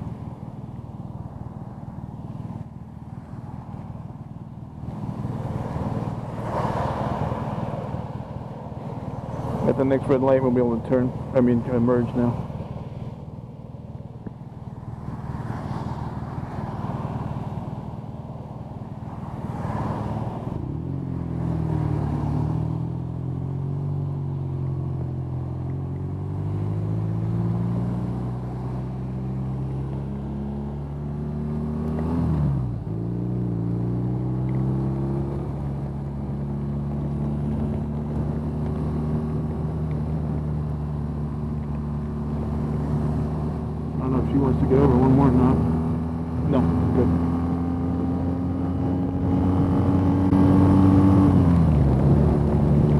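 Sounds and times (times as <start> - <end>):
motorcycle engine idling and accelerating: 0.0 - 52.9.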